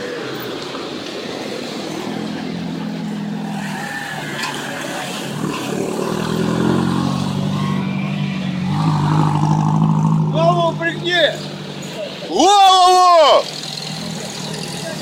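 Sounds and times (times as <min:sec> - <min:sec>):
vehicle engine accelerating: 0:01.9 - 0:12.1, 0:13.4 - 0:15.0.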